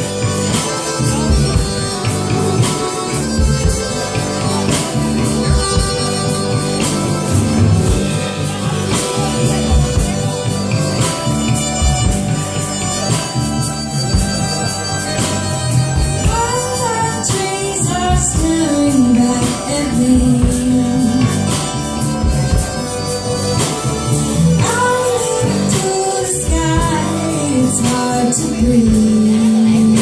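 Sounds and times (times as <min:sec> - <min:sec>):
acoustic guitar: 0:00.0 - 0:30.0
bass guitar: 0:00.0 - 0:30.0
drums beat: 0:00.0 - 0:30.0
piano accordion: 0:00.0 - 0:30.0
woman singing: 0:16.1 - 0:21.8, 0:24.6 - 0:30.0.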